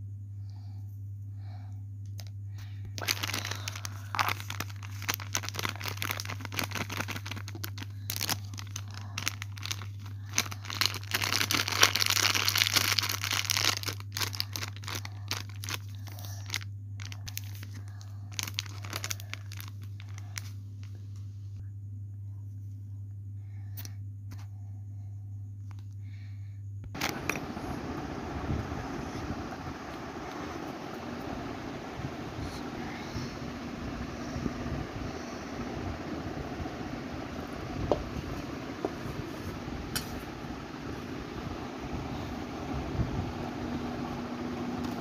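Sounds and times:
steady low hum: 0.0 - 45.0
plastic packaging crinkling: 3.0 - 21.0, 27.0 - 29.0.

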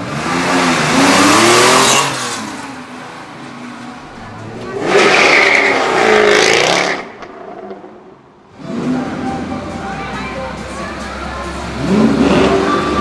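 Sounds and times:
car engine revving: 0.0 - 3.1, 4.0 - 9.6, 11.6 - 13.0.

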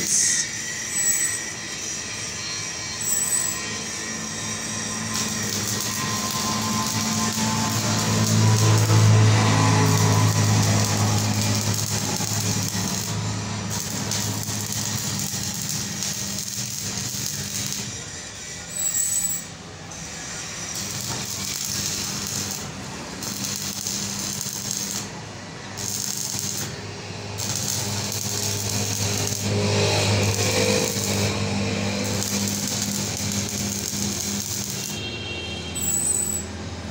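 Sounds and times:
welding arc crackling: 3.0 - 36.5.

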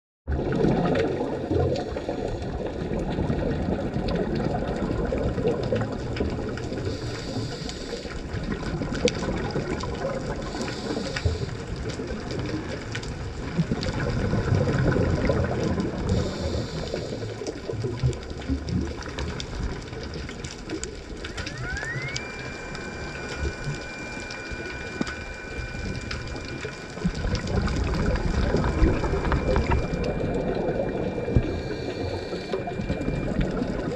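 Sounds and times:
rumble of exhaled bubbles: 0.3 - 33.9
thin whine: 6.3 - 17.7, 18.8 - 33.9
diver's regulator breathing: 6.6 - 9.3, 10.0 - 12.4, 14.7 - 18.0, 19.0 - 33.9.

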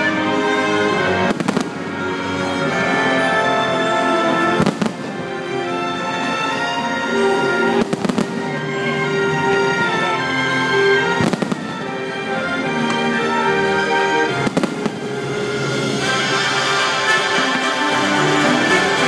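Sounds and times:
show music with held notes: 0.0 - 19.0
fireworks cracking: 1.1 - 2.6, 4.5 - 6.7, 7.7 - 8.7, 11.0 - 13.4, 14.1 - 19.0.

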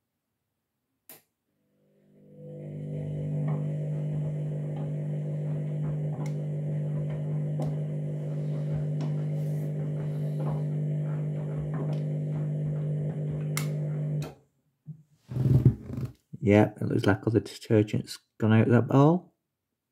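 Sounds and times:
washing machine humming: 2.2 - 14.3.

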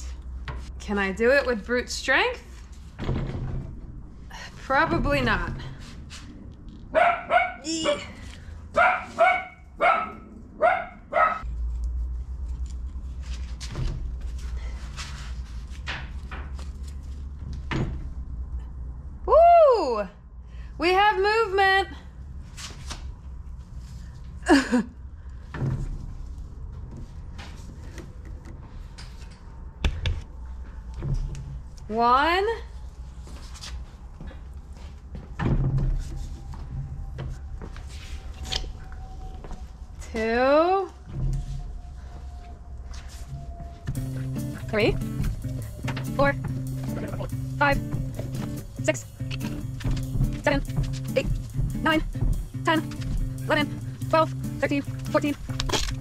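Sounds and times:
dog barking: 6.9 - 8.1, 8.8 - 11.5.

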